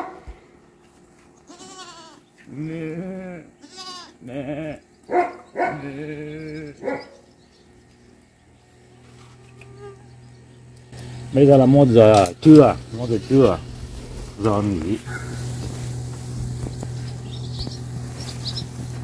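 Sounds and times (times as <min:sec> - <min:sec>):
goats bleating: 0:01.3 - 0:05.0, 0:05.6 - 0:07.0.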